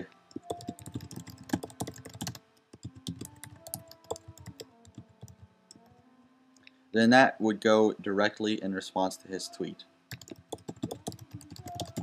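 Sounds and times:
typing on computer keyboard: 0:00.3 - 0:05.8, 0:10.1 - 0:12.0.

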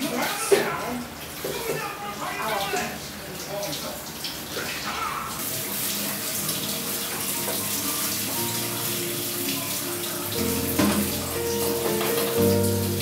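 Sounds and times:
tap running into sink: 0:06.0 - 0:08.6, 0:10.5 - 0:12.7
instrumental background music: 0:06.1 - 0:13.0.

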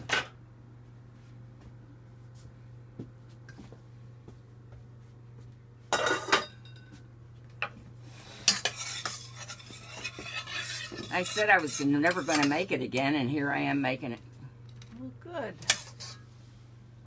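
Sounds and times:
low steady hum: 0:00.0 - 0:17.0
spoon scraping against pot: 0:08.2 - 0:12.7, 0:15.6 - 0:16.3
metal spoon clattering in saucepan: 0:08.5 - 0:12.6, 0:15.7 - 0:16.2.

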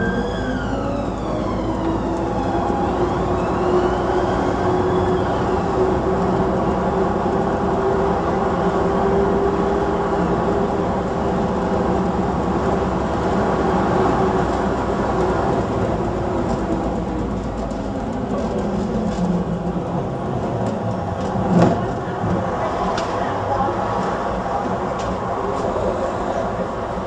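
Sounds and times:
distant siren wailing: 0:00.0 - 0:07.1
bus engine droning: 0:00.0 - 0:27.0.

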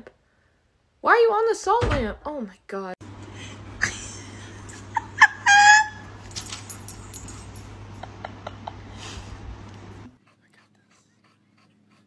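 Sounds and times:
puppy squealing: 0:05.2 - 0:06.2.

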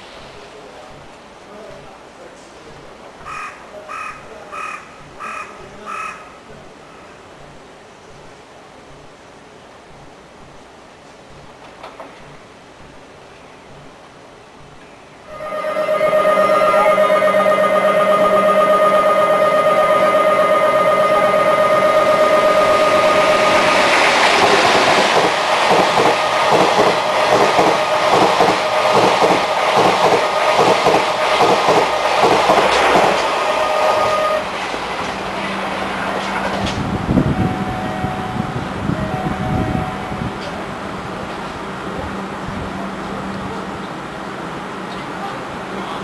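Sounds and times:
steady warning tone: 0:15.3 - 0:40.8
train wheels clattering: 0:22.9 - 0:37.0.

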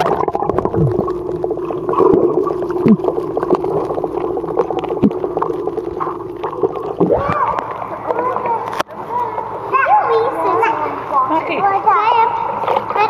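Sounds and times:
bubbling clicks and gurgles: 0:00.0 - 0:09.5
muffled underwater hum: 0:00.0 - 0:10.2.

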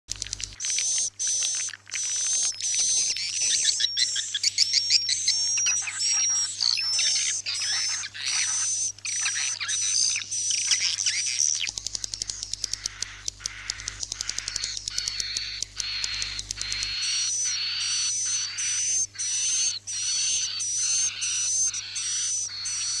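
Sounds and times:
swiftlets twittering: 0:00.1 - 0:23.0
rapid train of clicks: 0:11.7 - 0:15.2.

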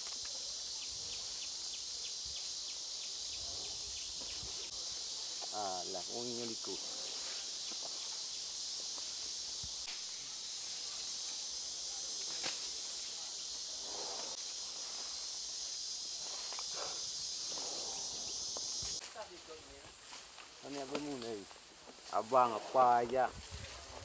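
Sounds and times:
insect chorus drone: 0:00.0 - 0:24.0.

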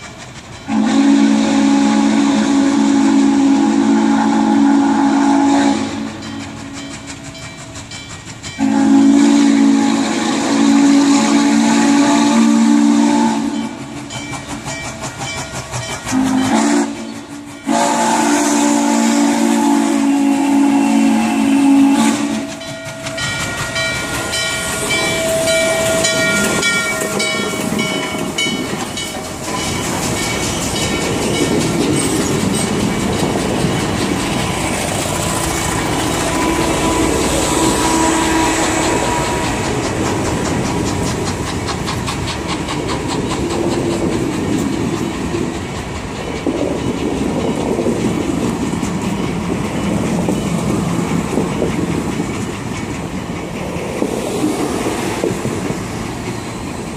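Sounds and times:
wheels clacking over rail joints: 0:00.0 - 0:01.3, 0:05.8 - 0:09.0, 0:13.4 - 0:17.7, 0:21.3 - 0:56.9
steam locomotive passing: 0:00.0 - 0:56.9
train cars rumbling: 0:00.0 - 0:56.9
bell ringing: 0:22.6 - 0:32.8.

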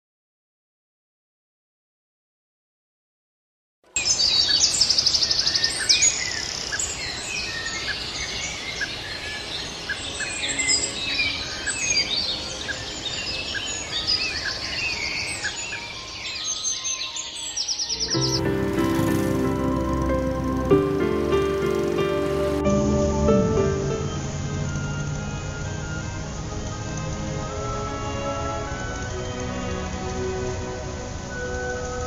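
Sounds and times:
birds chirping: 0:04.0 - 0:26.5
steady outdoor hiss: 0:04.0 - 0:32.0.

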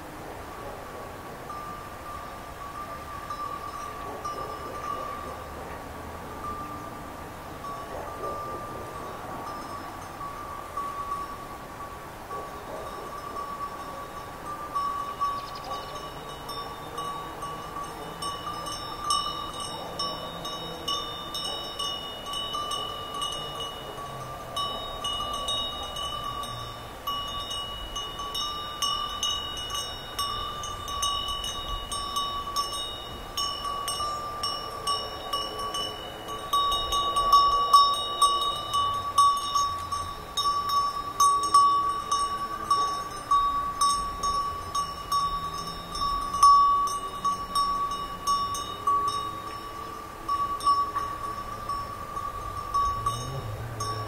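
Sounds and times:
sheep bells clinking: 0:01.4 - 0:54.0.

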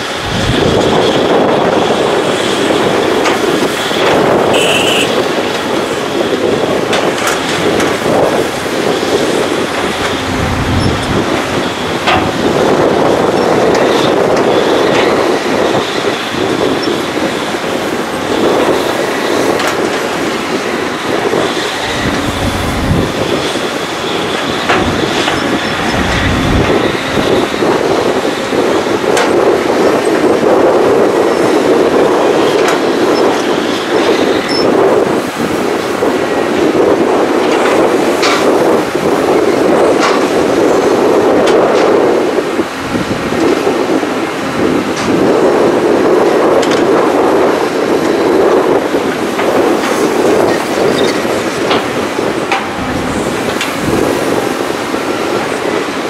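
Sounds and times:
excavator diesel engines: 0:00.0 - 0:56.0
faint high whine: 0:04.5 - 0:05.2
clanks and knocks: 0:12.0 - 0:12.4.

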